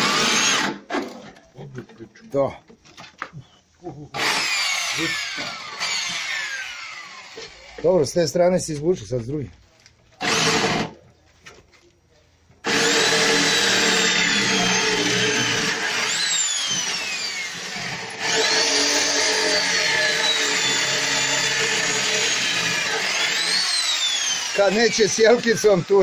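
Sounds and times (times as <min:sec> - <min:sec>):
electric drill boring into steel: 0:00.0 - 0:00.8, 0:04.2 - 0:07.5, 0:10.2 - 0:10.9, 0:12.6 - 0:26.0.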